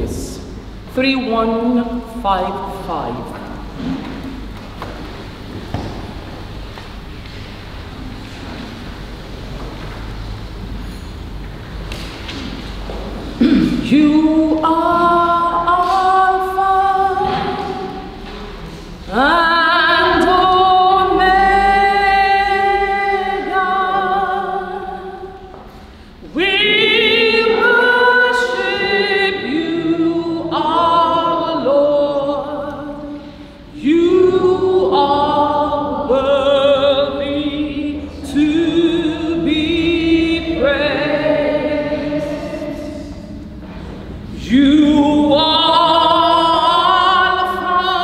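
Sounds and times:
voices singing a hymn a cappella: 0:13.4 - 0:48.0.

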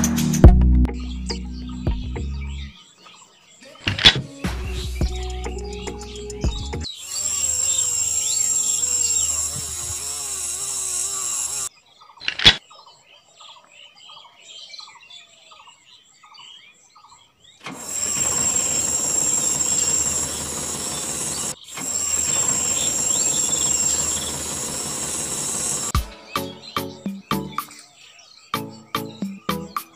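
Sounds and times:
faint chirps: 0:05.3 - 0:11.7, 0:17.8 - 0:25.9
small gear motor whining: 0:06.8 - 0:11.7, 0:17.7 - 0:26.0
sharp click: 0:12.2 - 0:12.6.

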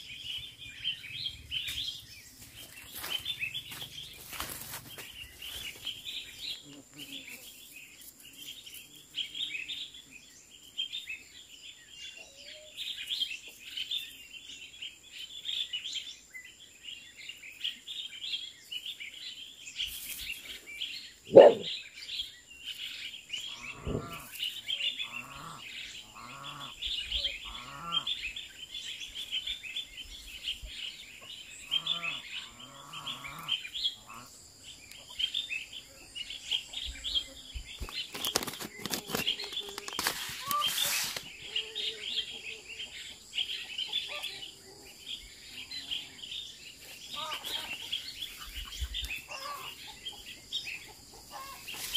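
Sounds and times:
birds chirping: 0:00.0 - 0:51.9
short pitched animal calls: 0:23.6 - 0:24.2.

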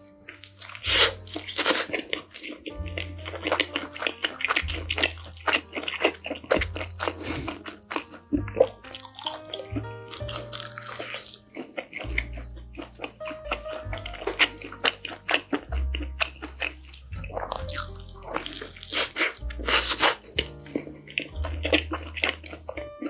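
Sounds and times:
background music with bass notes: 0:00.0 - 0:23.0
crunchy chewing of pizza: 0:00.0 - 0:23.0.

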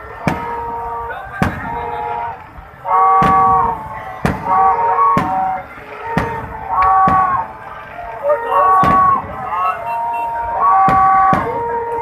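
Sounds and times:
fireworks bursting: 0:00.0 - 0:12.0.

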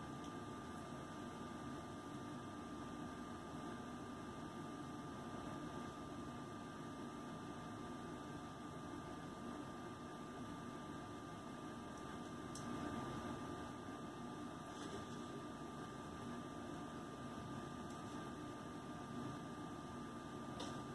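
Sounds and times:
room hum and hiss: 0:00.0 - 0:20.9.

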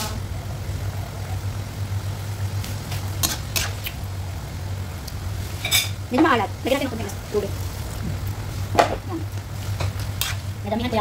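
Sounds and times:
food simmering in a wok: 0:00.0 - 0:11.0
spatula scraping a wok: 0:02.9 - 0:04.0, 0:09.5 - 0:10.6
low hum: 0:03.9 - 0:11.0.

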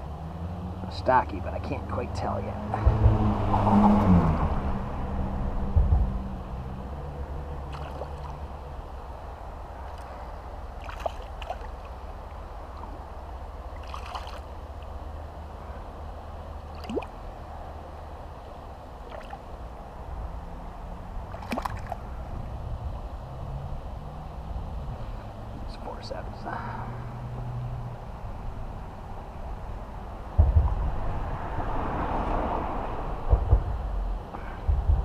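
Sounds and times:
steady low rumble: 0:00.8 - 0:31.7, 0:32.7 - 0:35.0
water splashing and dripping: 0:07.6 - 0:08.6, 0:09.8 - 0:13.1, 0:13.7 - 0:15.0, 0:16.6 - 0:17.2, 0:19.0 - 0:19.6, 0:21.2 - 0:22.1.

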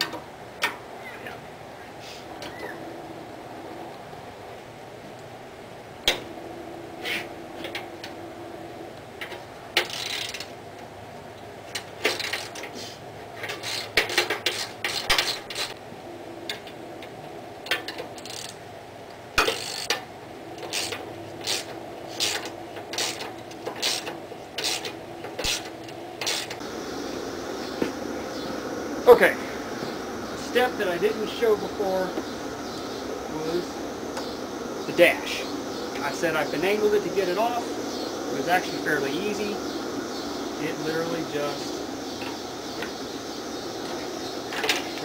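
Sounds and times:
steady low hum: 0:00.0 - 0:09.8, 0:14.7 - 0:45.0.

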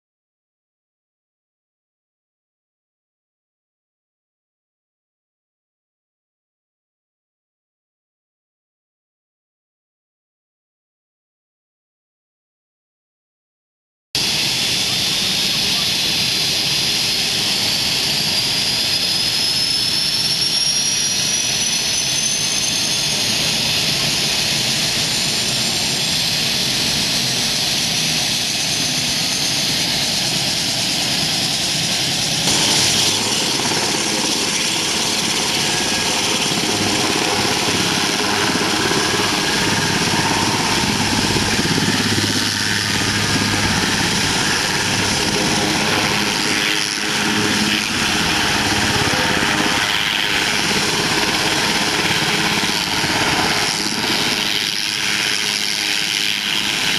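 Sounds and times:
helicopter rotors turning: 0:14.2 - 0:56.9
helicopter turbines whining: 0:14.2 - 0:56.9.

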